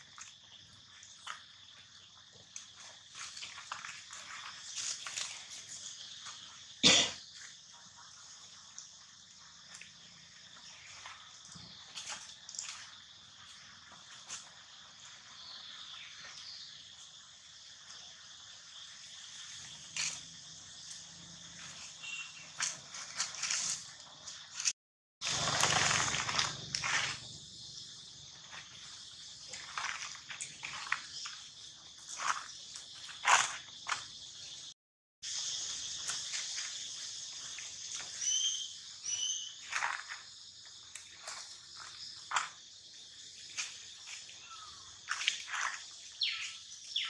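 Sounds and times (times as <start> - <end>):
rustle of dry leaves: 0.0 - 9.8, 10.4 - 47.0
insects chirring: 0.0 - 47.0
high-pitched insect drone: 25.2 - 47.0.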